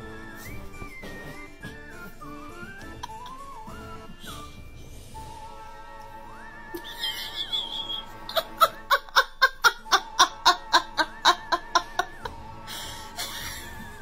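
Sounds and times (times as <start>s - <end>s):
rapid laughing: 2.8s - 3.6s, 6.8s - 14.0s.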